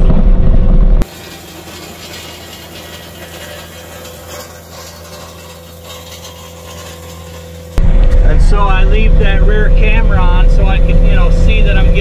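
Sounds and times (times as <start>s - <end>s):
diesel engine hum: 0.0s - 12.0s
stones rattling and scraping: 1.0s - 7.8s.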